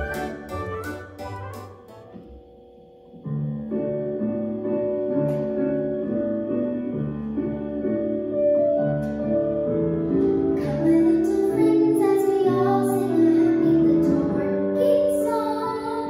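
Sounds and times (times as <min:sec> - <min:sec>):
piano accompaniment: 0:00.0 - 0:16.0.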